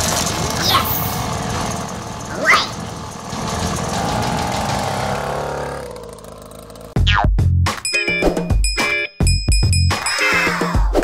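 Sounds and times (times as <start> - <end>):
dirt bike engine revving: 2.7 - 7.0.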